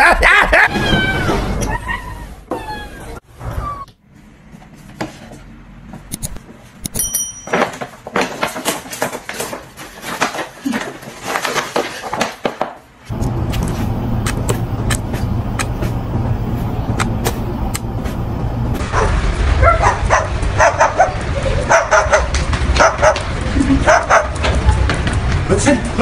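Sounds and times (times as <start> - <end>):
steady low hum: 13.1 - 19.3.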